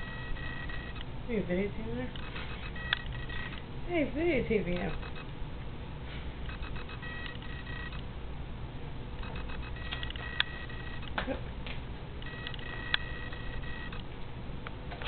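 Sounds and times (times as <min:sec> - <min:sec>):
electronic beeping tone: 0:00.0 - 0:01.0, 0:02.1 - 0:03.7, 0:04.8 - 0:05.3, 0:06.5 - 0:08.0, 0:09.2 - 0:11.2, 0:12.2 - 0:14.0
sharp clicks: 0:00.3 - 0:01.1, 0:02.1 - 0:03.6, 0:04.7 - 0:05.4, 0:06.4 - 0:08.0, 0:09.2 - 0:11.2, 0:12.2 - 0:14.8.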